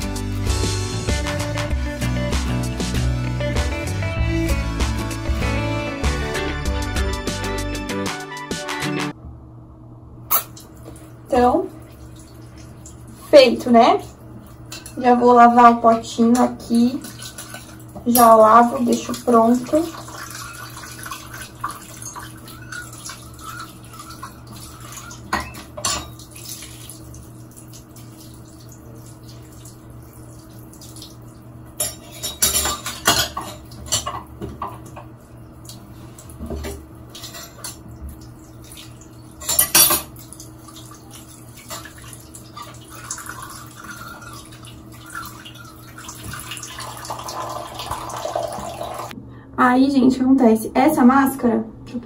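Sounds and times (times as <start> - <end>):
water running: 10.3 - 49.2.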